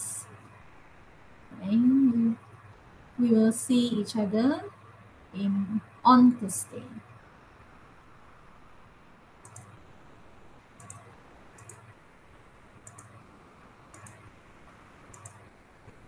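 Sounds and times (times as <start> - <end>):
computer mouse clicking: 9.4 - 9.8, 10.8 - 11.9, 12.8 - 13.2, 13.9 - 14.3, 15.1 - 15.5.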